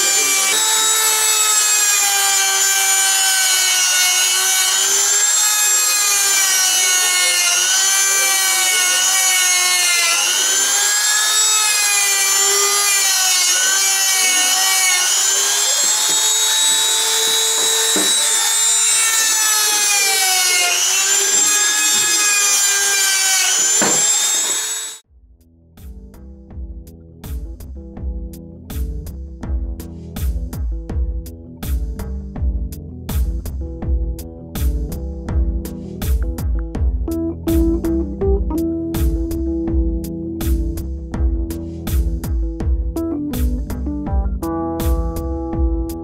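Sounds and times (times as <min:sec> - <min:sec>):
rotary tool motor whine: 0:00.0 - 0:25.0.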